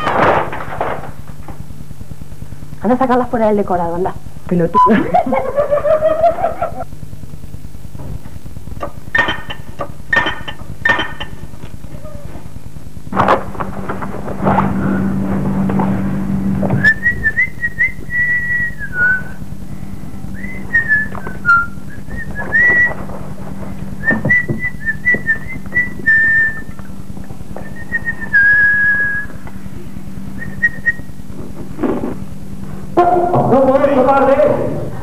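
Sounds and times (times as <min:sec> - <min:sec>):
steady low hum: 0:00.0 - 0:35.0
person whistling a tune: 0:16.8 - 0:19.4, 0:20.4 - 0:23.0, 0:24.0 - 0:26.8, 0:27.6 - 0:29.4.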